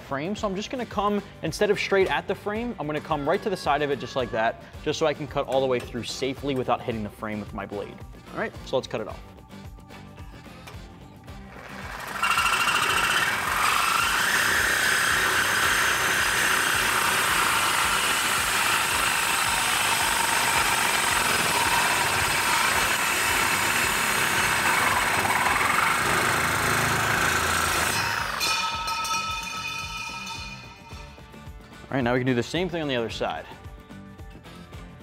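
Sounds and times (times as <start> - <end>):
reciprocating saw cutting metal pipe: 11.6 - 31.2.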